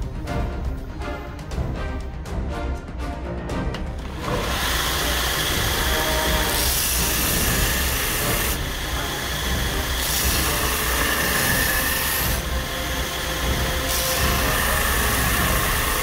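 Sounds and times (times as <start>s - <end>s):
belt grinder grinding steel: 4.0s - 16.0s.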